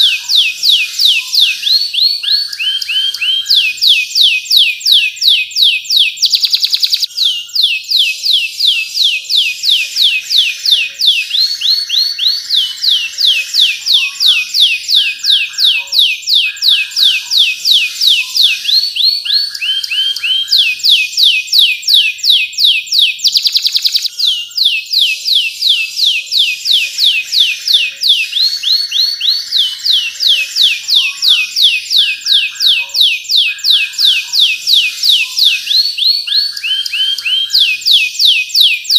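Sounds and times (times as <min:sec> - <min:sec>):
canary singing: 0:00.0 - 0:38.9.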